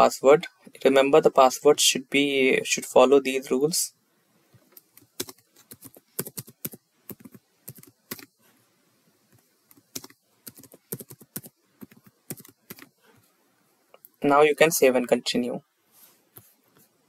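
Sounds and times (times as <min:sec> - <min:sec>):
typing on computer keyboard: 0:04.8 - 0:08.3, 0:09.7 - 0:12.9.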